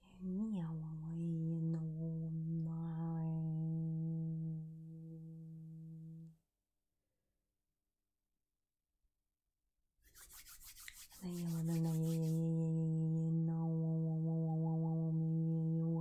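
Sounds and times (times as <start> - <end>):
palms rubbing together: 10.1 - 12.4.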